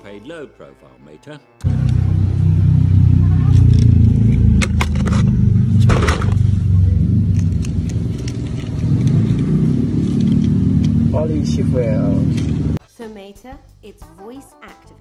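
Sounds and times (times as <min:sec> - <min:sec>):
steady low rumble: 0:01.6 - 0:12.8.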